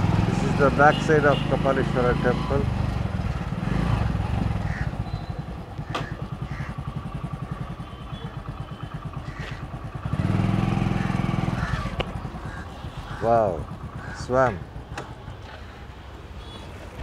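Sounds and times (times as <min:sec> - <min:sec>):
motorcycle engine revving: 0:00.0 - 0:14.2
motorcycle engine idling: 0:02.6 - 0:15.8.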